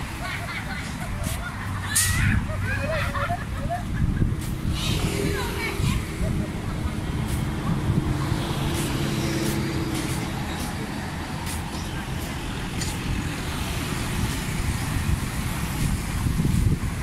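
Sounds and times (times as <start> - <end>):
engine hum: 0.0 - 17.0
road traffic rumble: 0.0 - 17.0
faint voices: 1.0 - 13.5.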